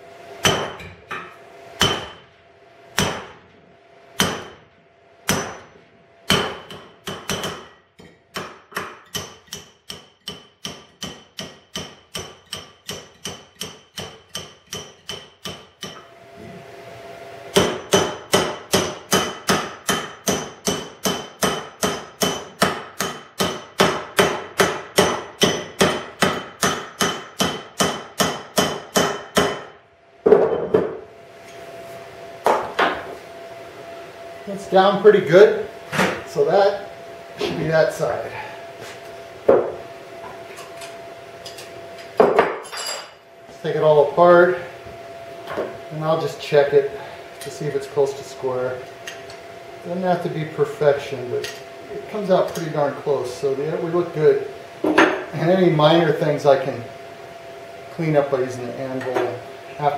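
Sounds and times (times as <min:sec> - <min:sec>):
hammer blows ringing on metal: 0:00.4 - 0:01.2, 0:01.8 - 0:02.3, 0:03.0 - 0:03.4, 0:04.2 - 0:04.6, 0:05.2 - 0:16.1, 0:17.5 - 0:29.8.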